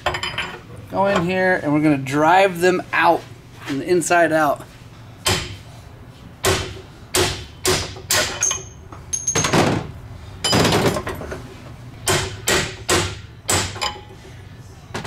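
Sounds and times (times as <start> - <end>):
hammer striking metal punch: 6.4 - 9.7, 12.0 - 14.0.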